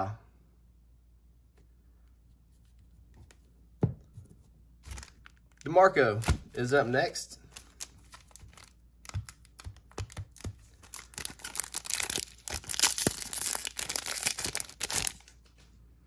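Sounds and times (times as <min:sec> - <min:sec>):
foil wrapper crinkling and ripping: 0:04.8 - 0:06.4, 0:07.5 - 0:15.5.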